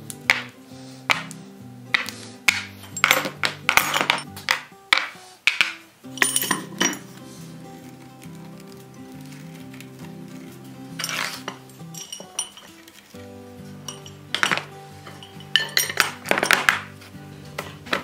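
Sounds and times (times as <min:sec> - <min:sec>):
background music: 0:00.0 - 0:18.0
metal hardware clinking and knocking: 0:02.0 - 0:07.1, 0:11.0 - 0:13.1, 0:13.8 - 0:17.0.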